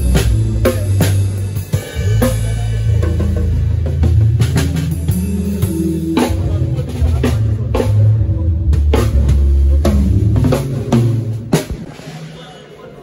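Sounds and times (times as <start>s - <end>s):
low held bass notes: 0.0s - 11.5s.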